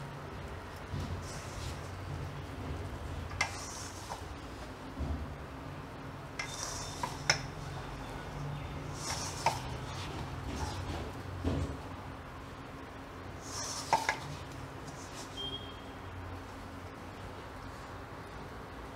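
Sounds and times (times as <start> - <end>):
hand mixing dough: 0.0 - 12.4, 13.2 - 15.8.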